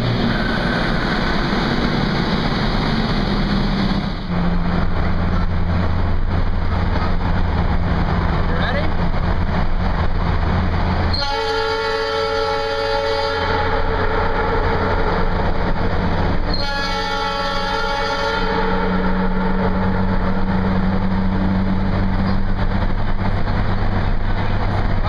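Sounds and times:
car engine humming: 0:00.0 - 0:25.0
air horn blasts: 0:11.1 - 0:14.8, 0:16.5 - 0:20.0.

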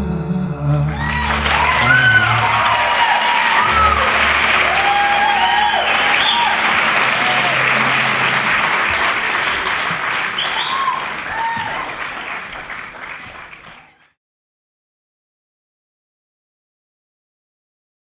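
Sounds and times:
crowd cheering and whooping: 0:00.9 - 0:12.4
audience applauding: 0:00.9 - 0:14.1.

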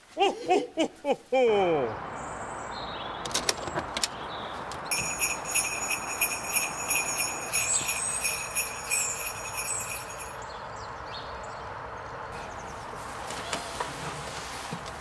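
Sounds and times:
sleigh bells jingling: 0:04.9 - 0:10.4.

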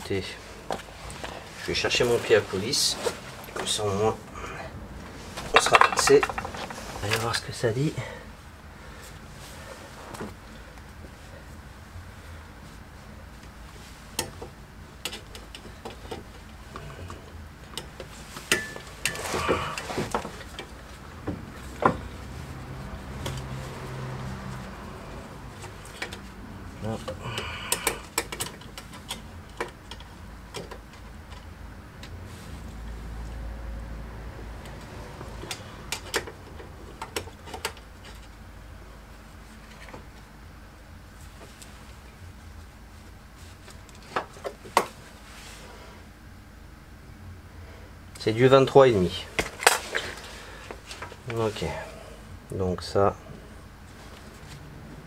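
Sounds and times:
low steady hum: 0:00.0 - 0:55.0
metal clatter: 0:05.4 - 0:07.2
metal tools clicking and tapping: 0:05.5 - 0:06.8, 0:17.8 - 0:19.2
tools and metal parts clicking: 0:05.5 - 0:06.9.

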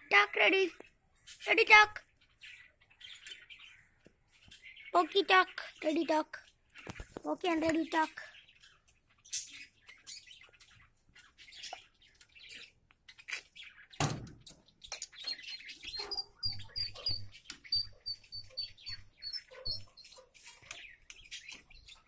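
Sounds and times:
caged birds chirping and chattering: 0:00.0 - 0:22.0
high clear chirps: 0:15.2 - 0:20.2.

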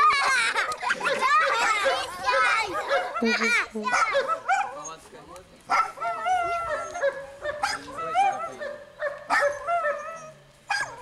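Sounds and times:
high-pitched vocal cries: 0:03.2 - 0:04.3.

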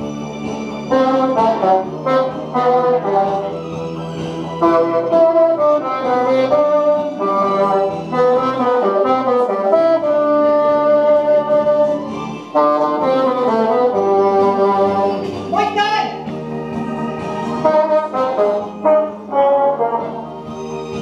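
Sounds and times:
bassoon playing slow melody: 0:00.9 - 0:03.6, 0:04.6 - 0:15.4, 0:17.6 - 0:20.4.

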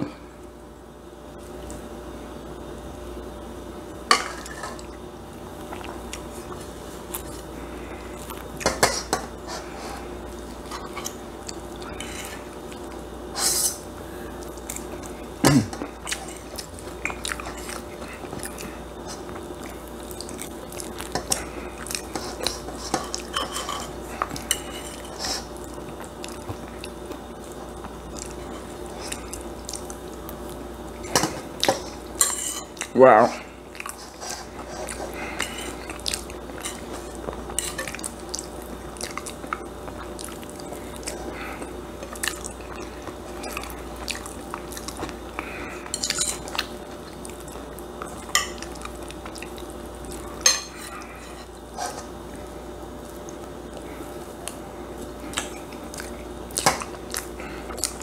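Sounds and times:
chewing: 0:05.6 - 0:08.7, 0:15.8 - 0:32.0, 0:33.7 - 0:52.1, 0:53.0 - 0:58.0
utensils clinking on plate and pan: 0:22.1 - 0:25.4, 0:31.1 - 0:32.8, 0:45.9 - 0:46.5, 0:50.4 - 0:52.1.

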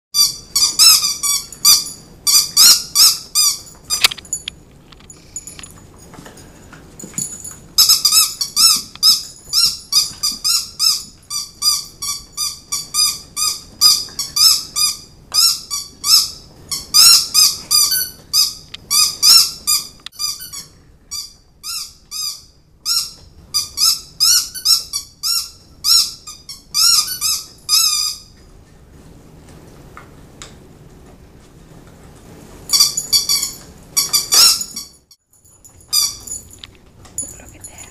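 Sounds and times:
dog squeaky toys squeaking: 0:00.2 - 0:04.4, 0:07.2 - 0:28.3, 0:32.7 - 0:35.0, 0:35.9 - 0:36.6.

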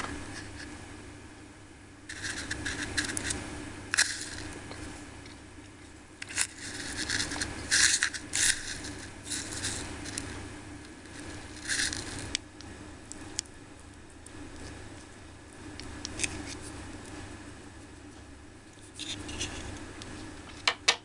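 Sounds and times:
chopsticks scraping plastic cup: 0:02.1 - 0:03.4, 0:04.0 - 0:04.6, 0:06.2 - 0:10.3, 0:11.1 - 0:12.4, 0:18.8 - 0:19.7.

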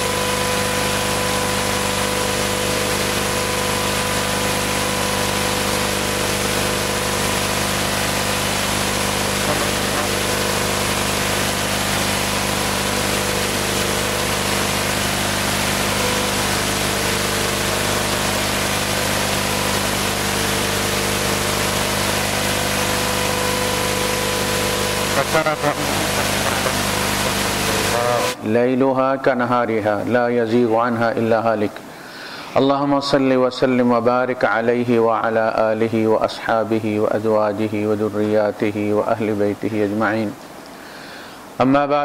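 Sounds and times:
hum of fixed tones: 0:00.0 - 0:28.4
steady loud hiss: 0:00.0 - 0:42.0.

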